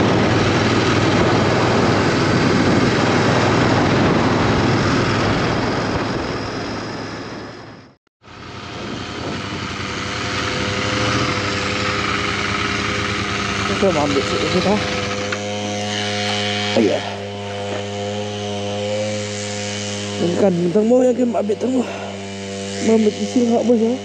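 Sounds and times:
wind on microphone: 0:00.0 - 0:19.3
motorcycle engine: 0:00.0 - 0:24.0.

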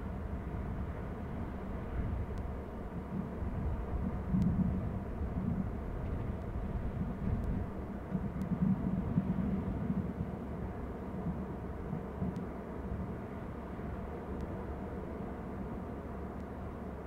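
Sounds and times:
low outdoor rumble: 0:00.0 - 0:17.0
faint ticks: 0:04.3 - 0:04.6, 0:07.3 - 0:08.7, 0:11.3 - 0:12.5, 0:14.4 - 0:14.6.

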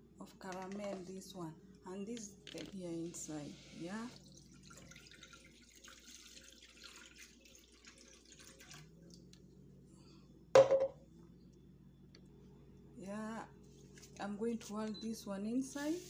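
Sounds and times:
milk pouring into saucepan: 0:04.1 - 0:09.4.

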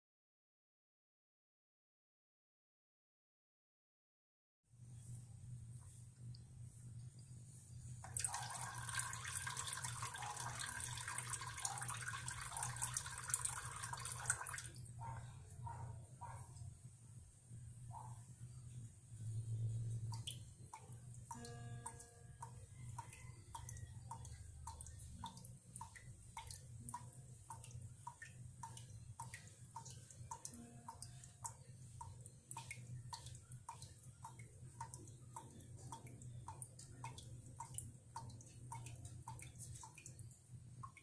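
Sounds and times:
water drops plinking into basin: 0:08.0 - 0:15.2, 0:19.8 - 0:41.0.

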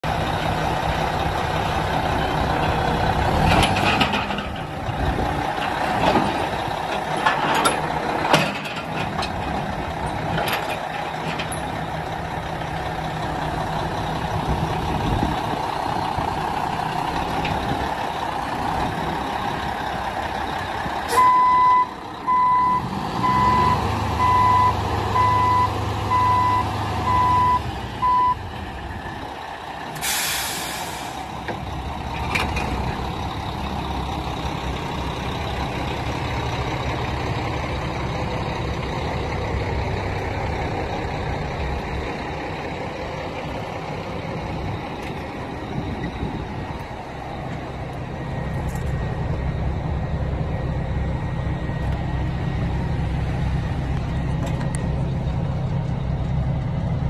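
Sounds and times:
diesel truck engine running: 0:00.0 - 0:57.0
backup alarm beeping: 0:21.1 - 0:28.4.

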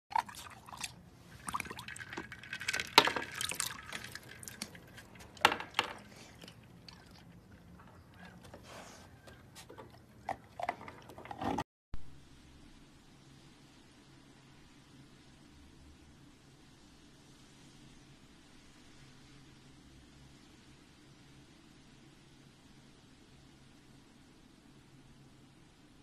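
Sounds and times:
ice cubes clinking: 0:00.1 - 0:11.6
water splashing in bowl: 0:00.1 - 0:11.6.

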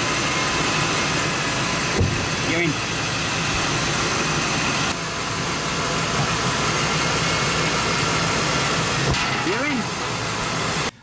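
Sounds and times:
motorhome engine idling: 0:00.0 - 0:11.0.

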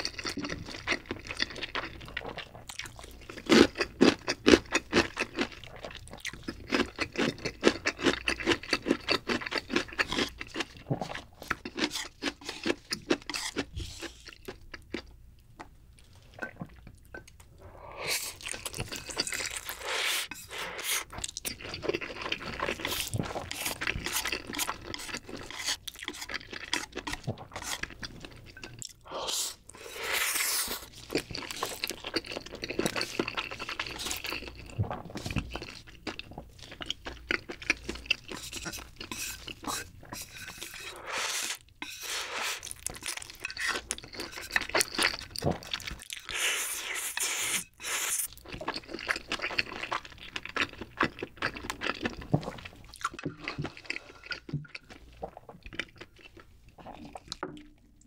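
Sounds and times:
noodle slurping: 0:17.6 - 0:21.2, 0:29.0 - 0:32.0, 0:38.2 - 0:42.8, 0:43.4 - 0:48.3
wet chewing: 0:18.2 - 0:41.8.

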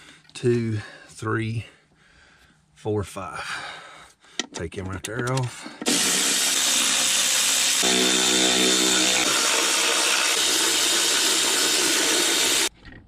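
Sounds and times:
cordless ratchet motor whine: 0:05.8 - 0:12.7.

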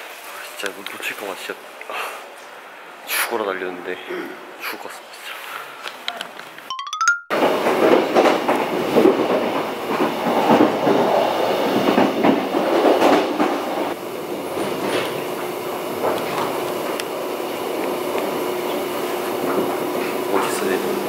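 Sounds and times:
train wheels rumbling on rails: 0:07.3 - 0:21.0.

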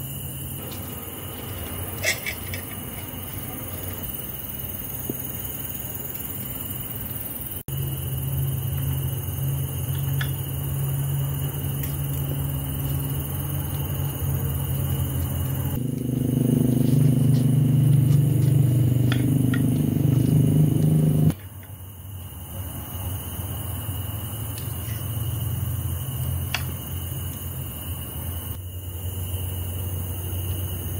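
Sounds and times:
low motor hum: 0:07.7 - 0:21.3.

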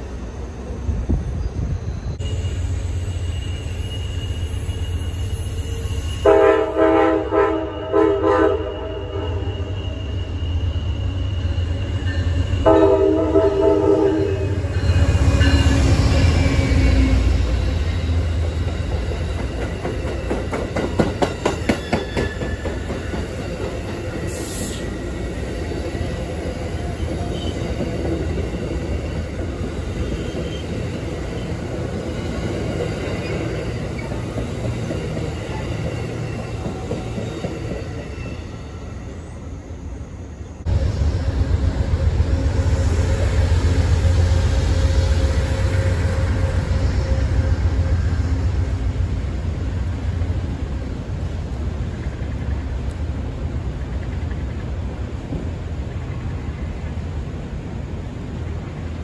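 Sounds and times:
diesel locomotive rumbling past: 0:00.0 - 0:59.0
train horn blast: 0:06.2 - 0:09.8, 0:12.6 - 0:14.7
train wheels clicking over rail joints: 0:18.4 - 0:24.8.

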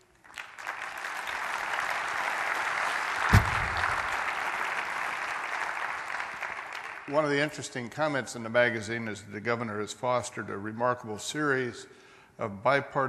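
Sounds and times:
audience applauding: 0:00.2 - 0:07.1
low thump: 0:03.3 - 0:04.2.

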